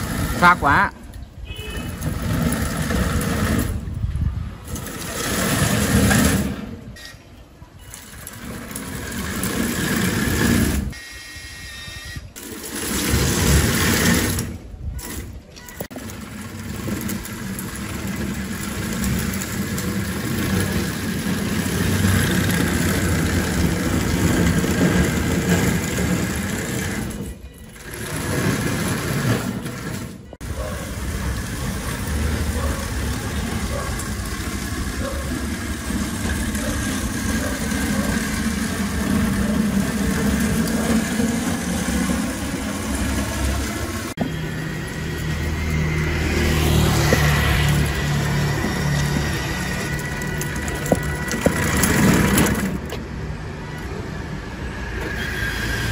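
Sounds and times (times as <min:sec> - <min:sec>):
electric motors whining: 0:07.9 - 0:53.0
robot tracks rattling: 0:12.3 - 0:44.3, 0:46.6 - 0:53.0.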